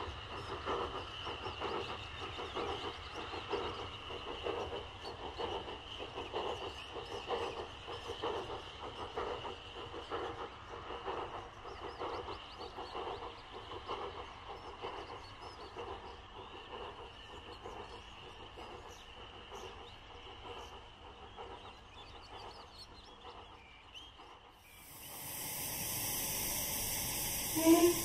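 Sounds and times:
steam locomotive: 0.0 - 28.0
steady hiss: 24.6 - 28.0.

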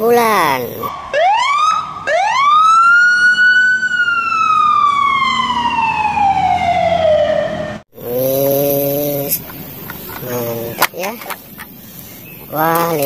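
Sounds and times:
ambulance siren wailing: 0.9 - 7.8.

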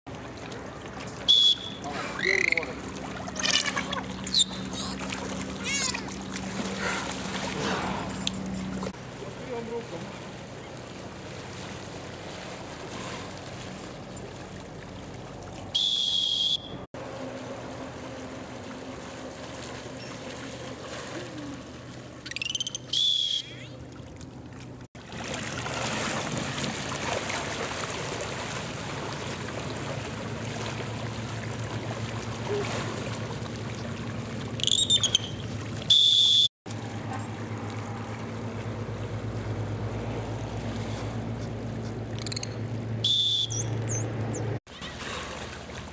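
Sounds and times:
water splashing and sloshing: 0.1 - 45.9
high whistle blasts: 1.3 - 1.8, 15.8 - 16.8, 22.9 - 23.6, 35.9 - 36.5, 43.0 - 44.0
quick rising whistle chirps: 15.8 - 16.8, 22.3 - 23.7, 42.3 - 44.4.

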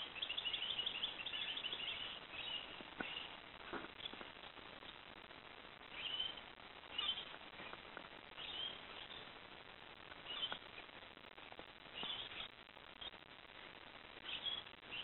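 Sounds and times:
birds chirping: 0.0 - 5.1, 5.8 - 9.4, 10.1 - 11.0, 11.9 - 13.2, 14.2 - 15.0
steady background hiss: 0.0 - 15.0.

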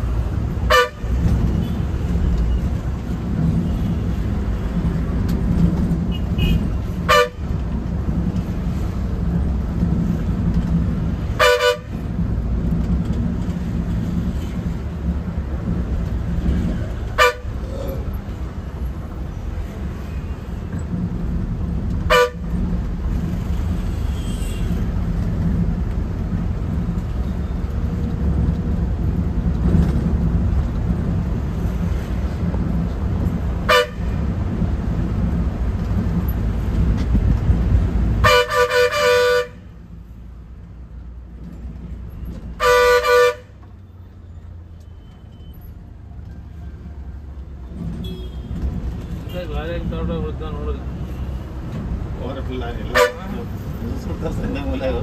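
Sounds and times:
bus engine drone: 0.0 - 55.0
bus horn tooting: 0.6 - 1.9, 6.1 - 7.5, 11.2 - 12.0, 16.6 - 17.6, 22.0 - 22.6, 23.8 - 24.9, 33.6 - 34.2, 38.2 - 39.7, 42.5 - 43.6, 48.0 - 49.4, 52.7 - 53.4.

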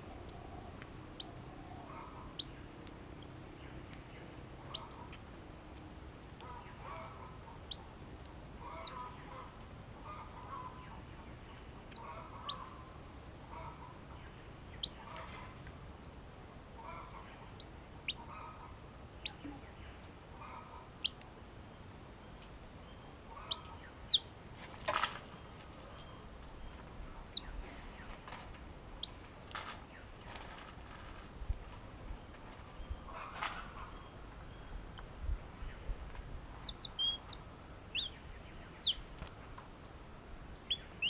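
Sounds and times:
lower bird chattering: 8.6 - 9.4, 23.3 - 24.6, 36.6 - 39.1.

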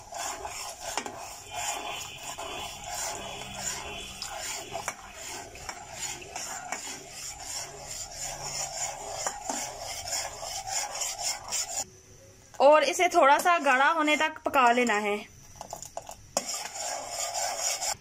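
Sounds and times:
metal spoon scraping saucepan: 0.0 - 11.8, 16.4 - 18.0.

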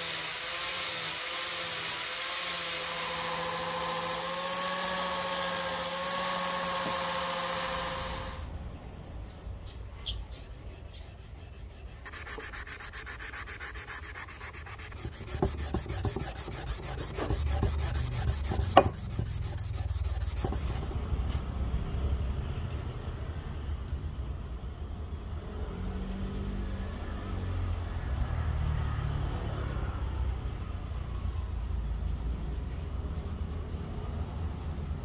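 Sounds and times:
angle grinder on steel: 0.0 - 9.4, 10.3 - 21.0
abrasive pad scrubbing metal: 2.8 - 21.1.

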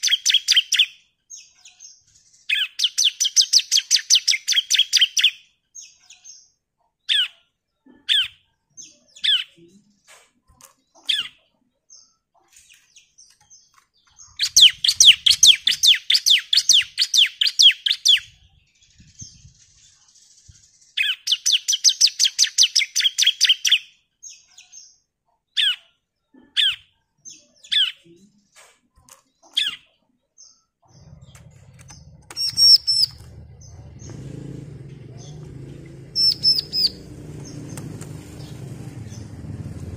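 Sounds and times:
bird rapid note runs: 31.0 - 39.9.

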